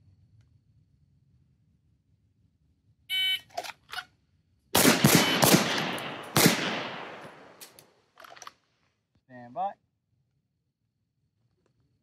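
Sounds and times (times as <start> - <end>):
handgun shots echoing: 4.8 - 7.8
shot-timer beep: 5.2 - 5.4.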